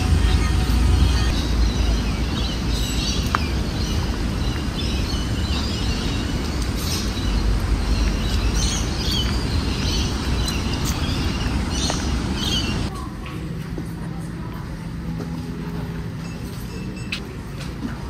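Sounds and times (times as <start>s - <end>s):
birds chirping: 0.0s - 12.9s
low city rumble: 0.0s - 18.0s.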